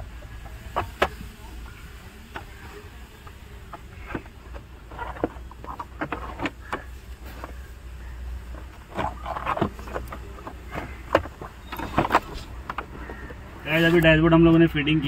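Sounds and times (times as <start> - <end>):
low steady hum: 0.0 - 15.0
plastic knocks clicks and rattles: 2.3 - 7.8, 8.4 - 13.4.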